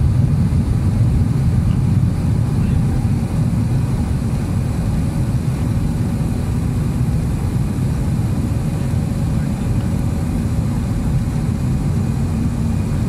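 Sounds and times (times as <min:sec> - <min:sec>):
jet engines roaring in cabin: 0:00.0 - 0:13.0.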